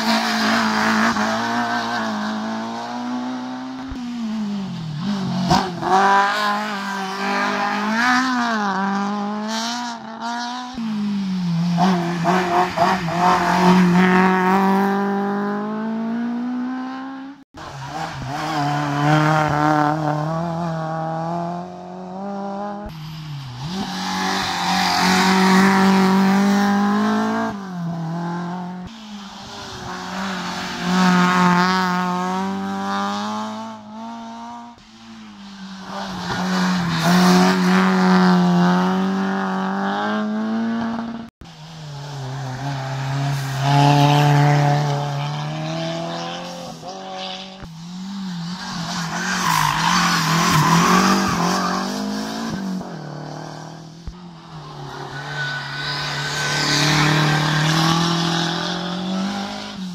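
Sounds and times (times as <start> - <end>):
race car engines revving: 0.0 - 59.9.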